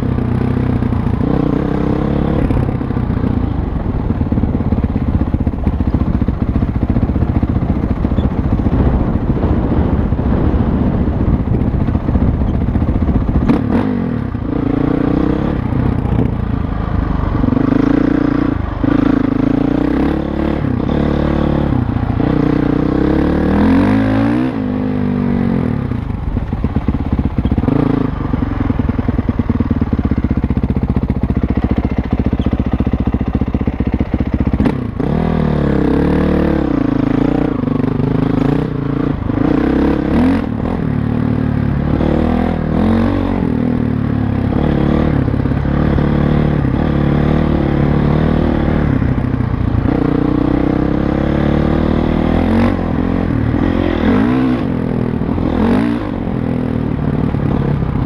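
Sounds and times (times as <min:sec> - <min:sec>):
dirt bike engine revving: 0:00.0 - 0:03.6, 0:12.7 - 0:26.0, 0:27.4 - 0:28.5, 0:31.5 - 0:49.0, 0:49.8 - 0:58.0.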